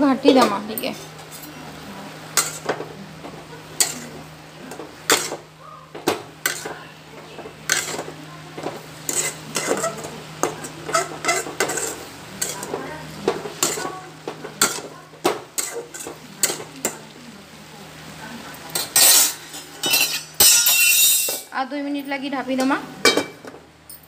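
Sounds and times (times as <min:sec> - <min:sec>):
metal spoon scraping metal pan: 0:09.0 - 0:12.7, 0:15.6 - 0:16.6, 0:18.8 - 0:21.5.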